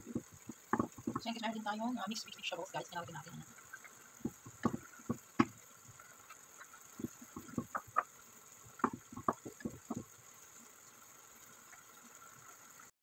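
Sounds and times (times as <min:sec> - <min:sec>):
wooden spoon stirring in pot: 0:00.0 - 0:10.2
faint steady hiss: 0:00.0 - 0:12.9.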